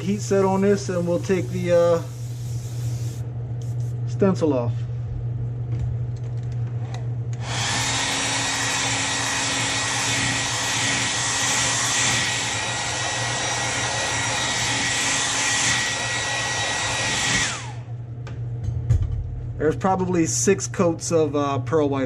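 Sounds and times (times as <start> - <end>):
hot-air blower whining: 0.0 - 5.3, 6.7 - 18.6.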